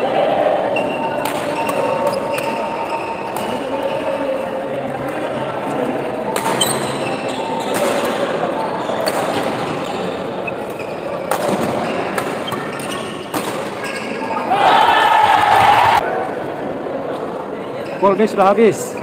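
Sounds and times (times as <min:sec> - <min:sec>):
murmur of spectators: 0:00.0 - 0:19.0
rackets striking shuttlecock: 0:01.2 - 0:03.6, 0:10.6 - 0:14.0.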